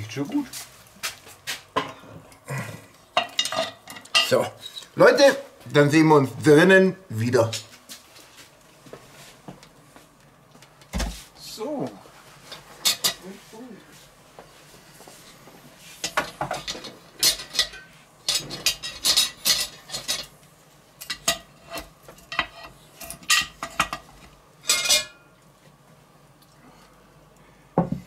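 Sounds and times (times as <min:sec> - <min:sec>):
iron lid clinking and knocking: 0:24.6 - 0:25.2.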